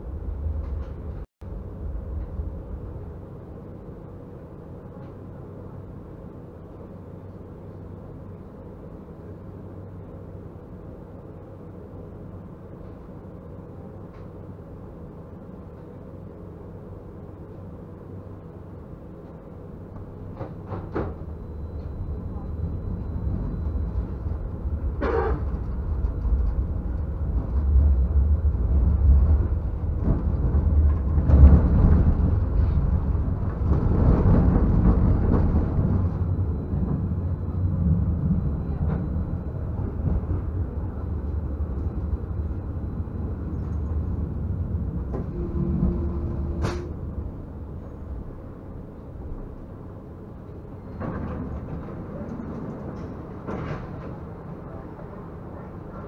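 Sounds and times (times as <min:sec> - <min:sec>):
tram rumbling on track: 0:00.0 - 0:56.0.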